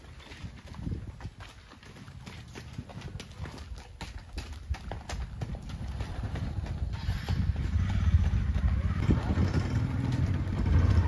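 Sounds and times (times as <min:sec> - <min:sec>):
horse hooves on dirt: 0:00.0 - 0:11.0
motorcycle engine rumbling: 0:05.4 - 0:11.0.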